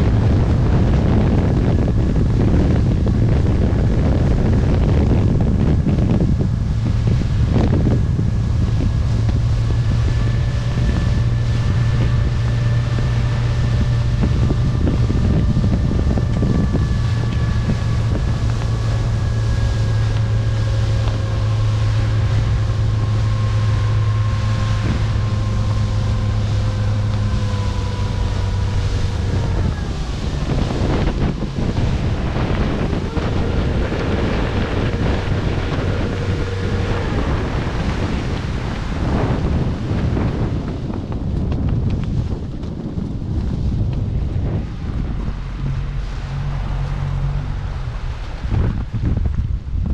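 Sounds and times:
motorboat engine running: 0.0s - 49.9s
wind buffeting microphone: 0.0s - 49.9s.

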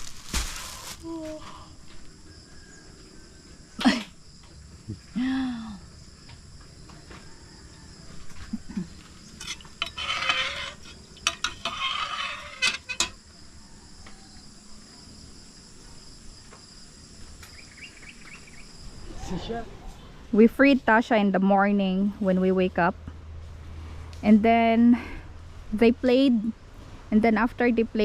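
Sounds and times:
metal ladle scraping pot: 9.4s - 13.2s.

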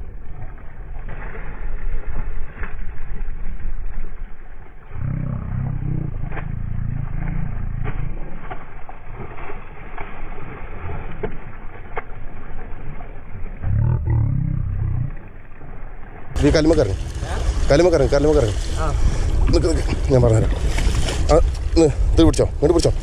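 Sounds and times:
low rumble: 4.7s - 9.0s, 13.5s - 23.0s
fish splashing in water: 5.0s - 22.2s.

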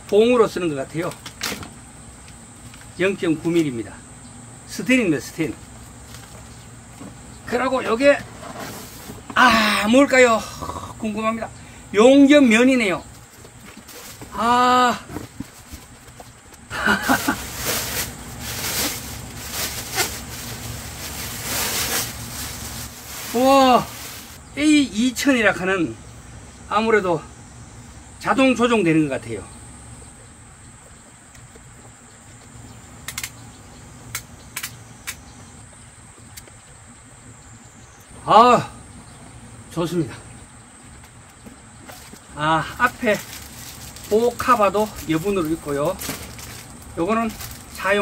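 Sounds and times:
steady low hum: 0.0s - 48.0s
vocal murmur: 10.4s - 11.1s
high thin whine: 16.9s - 24.4s
plastic bag crinkling: 17.0s - 24.4s, 42.8s - 47.8s.

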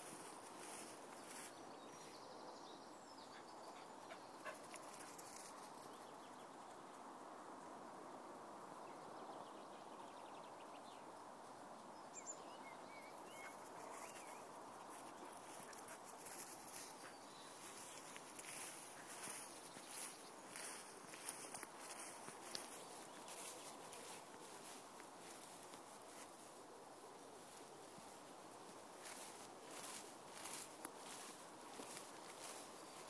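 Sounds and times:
footsteps through long grass: 0.0s - 2.2s, 13.5s - 33.0s.

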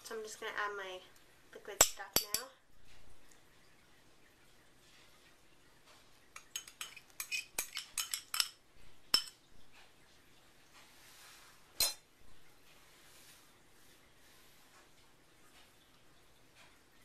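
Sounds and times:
glass cup clinking on glass jug: 6.4s - 9.4s, 11.8s - 12.0s.

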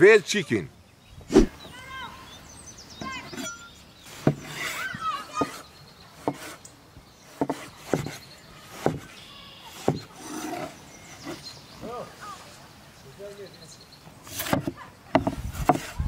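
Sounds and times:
birds chirping: 0.0s - 16.0s
knife slicing on wooden board: 1.3s - 1.5s.

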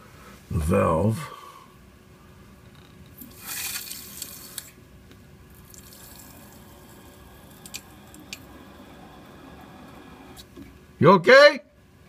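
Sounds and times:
water hissing through valve: 3.2s - 4.7s, 5.5s - 10.6s.

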